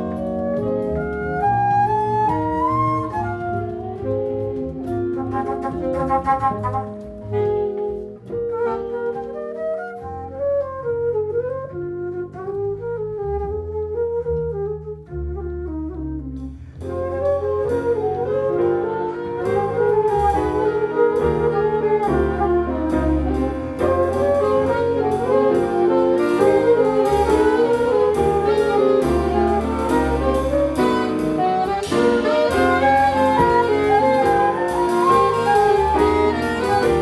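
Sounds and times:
jazz band playing: 0.0s - 37.0s
saxophones and flute: 0.0s - 37.0s
drums and cymbals: 16.4s - 37.0s.

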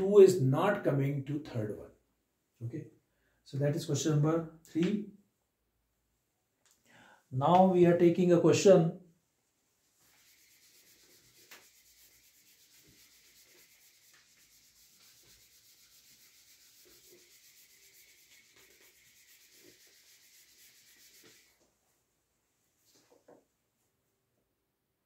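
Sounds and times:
eraser wiping whiteboard: 9.9s - 21.8s.

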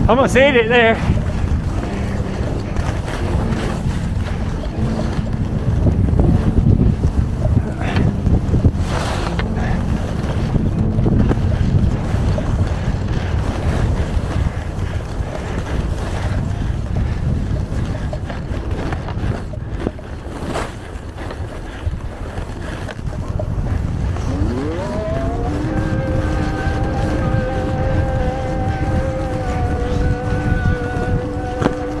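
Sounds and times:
pitched hum: 0.0s - 20.6s, 23.3s - 32.0s
skis running on snow: 0.0s - 32.0s
wind rushing over microphone: 0.0s - 32.0s.

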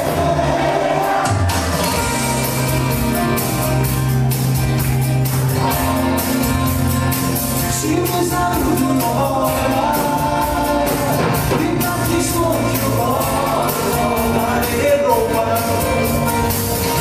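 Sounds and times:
backing music with beat: 0.0s - 17.0s
man singing into microphone: 7.7s - 16.4s.

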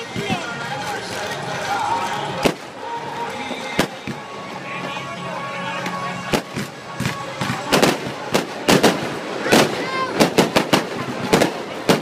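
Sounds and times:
fireworks cracking and banging: 0.0s - 5.1s, 5.8s - 12.0s
firework wail: 6.3s - 12.0s.

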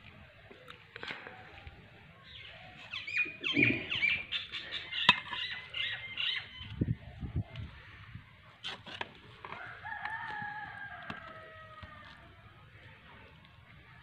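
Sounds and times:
birds chirping and squawking: 2.2s - 8.2s.

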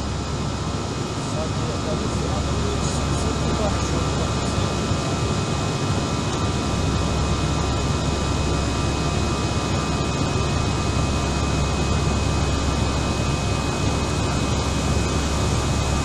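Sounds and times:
jet engine and airflow in cabin: 0.0s - 16.0s.

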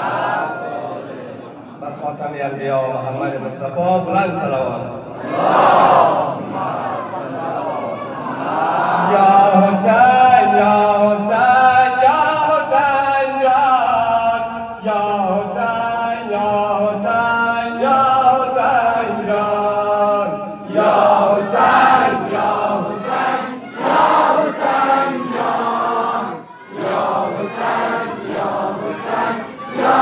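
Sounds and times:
men chanting rhythmically: 17.9s - 30.0s.

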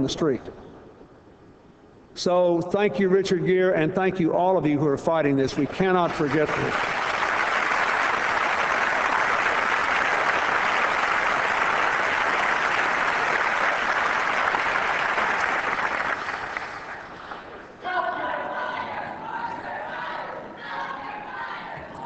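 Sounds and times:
audience applauding: 5.9s - 17.5s.

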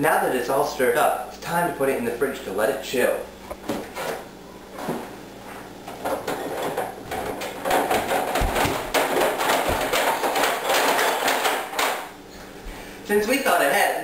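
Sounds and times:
dull thumps: 6.0s - 12.0s
containers and jars clattering: 6.0s - 12.1s.

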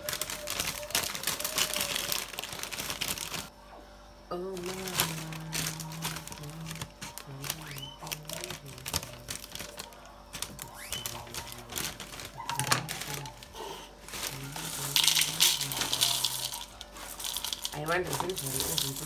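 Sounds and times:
cereal flakes pouring into bowl: 0.0s - 3.5s, 4.7s - 9.8s, 14.1s - 19.0s
plastic bag crinkling: 0.0s - 3.5s, 4.5s - 19.0s.

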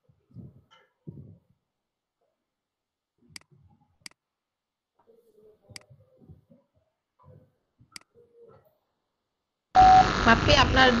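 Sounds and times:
computer mouse clicks: 3.3s - 4.2s.

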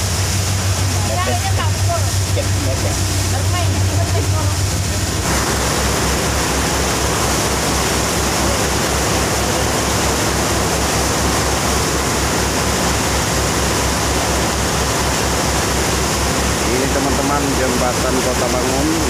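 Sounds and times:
boat engine low throb: 0.0s - 19.0s
wake water rushing: 0.0s - 19.0s.

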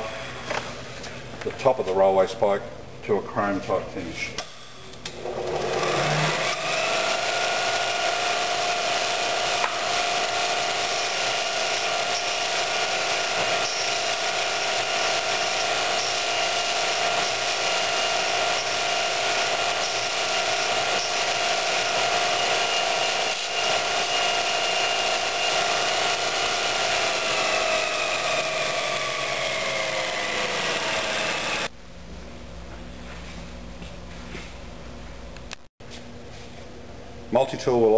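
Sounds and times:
bench grinder whining: 5.1s - 31.7s.

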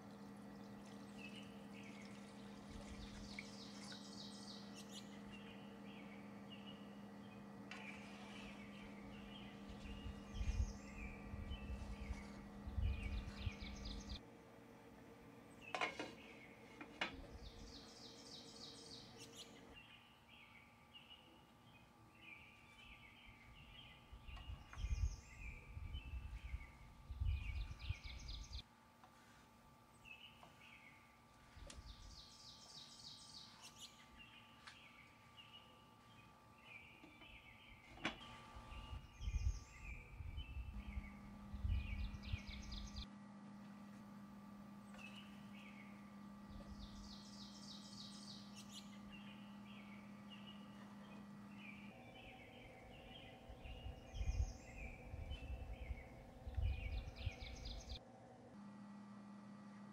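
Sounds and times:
birds chirping: 0.0s - 14.6s, 15.4s - 28.6s, 29.9s - 43.1s, 44.0s - 58.0s.

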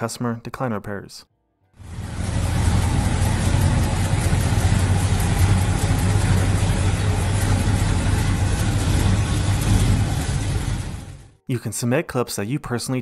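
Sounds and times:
car engine idling: 1.8s - 11.4s.

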